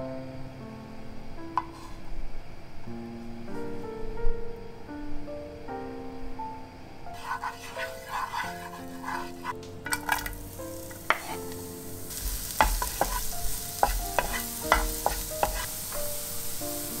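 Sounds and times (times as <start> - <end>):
spatula scraping a pan: 1.6 - 2.0, 7.1 - 16.2
onion sizzling in a pan: 7.1 - 17.0
butter frying: 7.2 - 17.0.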